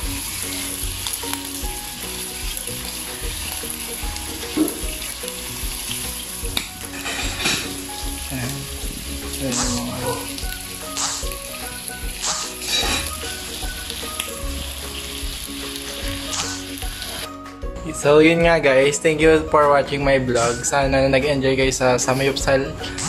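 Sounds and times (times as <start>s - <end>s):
meat sizzling on a grill pan: 0.0s - 17.3s.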